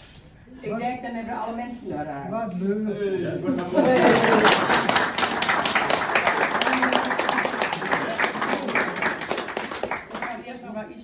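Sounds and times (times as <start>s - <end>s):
group applauding: 3.5s - 10.6s.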